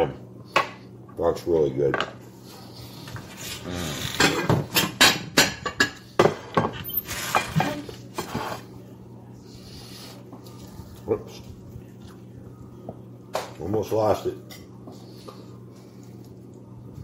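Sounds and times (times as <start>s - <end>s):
dishes and cutlery clattering: 4.1s - 8.4s.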